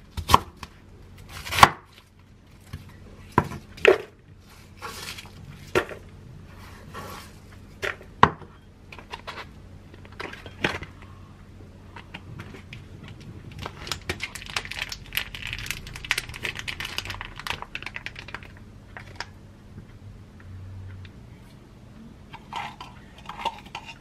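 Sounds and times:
plastic pouch crinkling: 13.1s - 19.3s.

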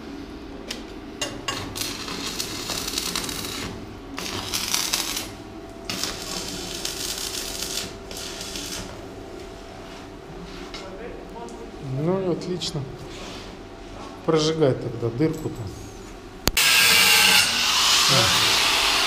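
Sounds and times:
machine hum: 0.0s - 19.0s
welding arc crackling: 1.6s - 9.2s.

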